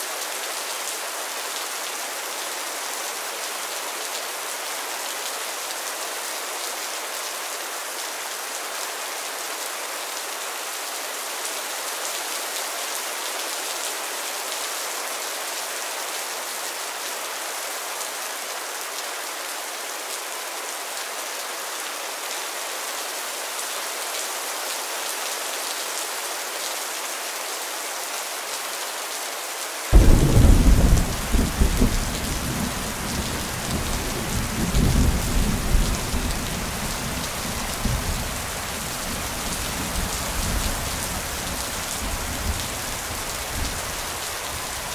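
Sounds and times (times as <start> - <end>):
steady rain hiss: 0.0 - 44.9
thunder clap and rumble: 30.0 - 33.2.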